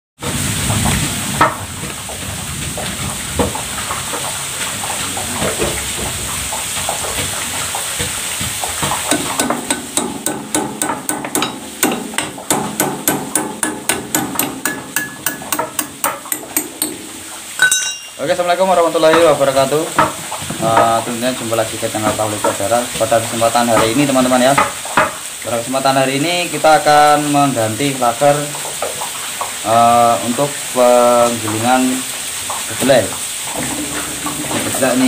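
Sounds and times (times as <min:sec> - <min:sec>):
hammer tapping on metal: 0:08.8 - 0:18.2, 0:19.1 - 0:20.2.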